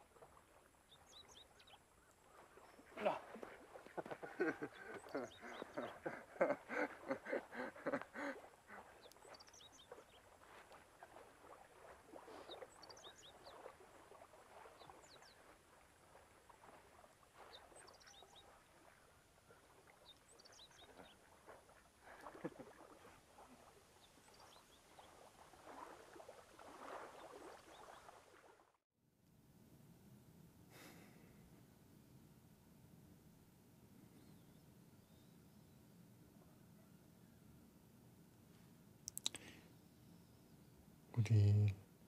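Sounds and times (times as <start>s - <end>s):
water lapping: 0.0s - 28.8s.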